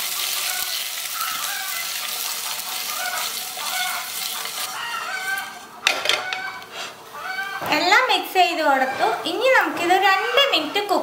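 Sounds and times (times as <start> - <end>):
oil sizzling in a pan: 0.0 - 5.6.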